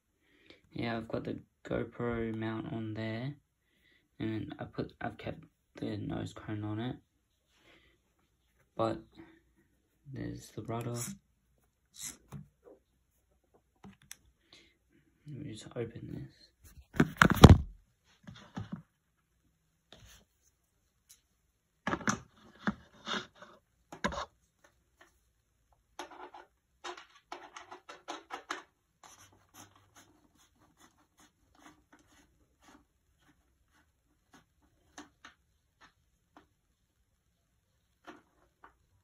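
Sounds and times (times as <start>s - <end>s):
plastic clicks and scrapes: 26.0s - 29.3s.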